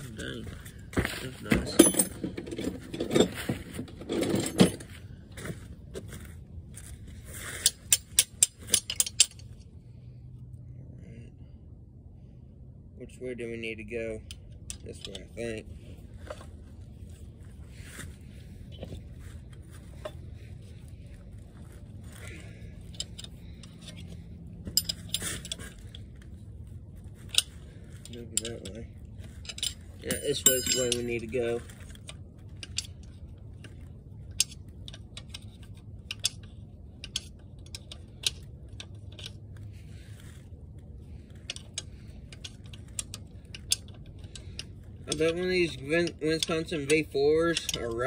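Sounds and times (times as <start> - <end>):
low hum: 0.0 - 48.0
metallic wrench clinks: 29.5 - 31.3
wrench scraping on metal bolt: 41.2 - 48.0.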